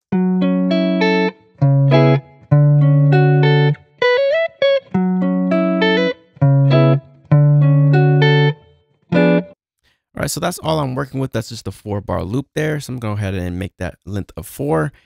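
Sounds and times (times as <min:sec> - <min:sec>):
guitar loop plucked chords: 0:00.1 - 0:09.6.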